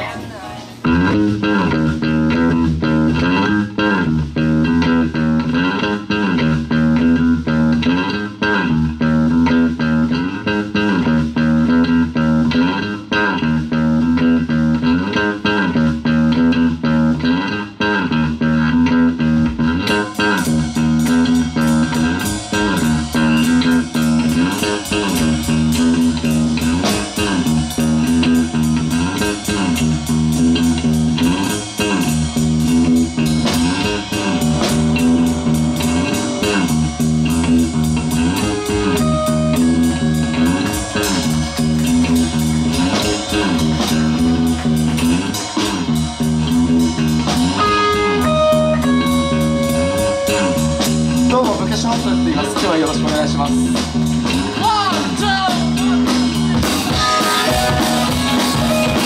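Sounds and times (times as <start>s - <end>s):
electric bass guitar riff: 0.0s - 59.0s
drums with fast cymbal beat: 19.4s - 59.0s.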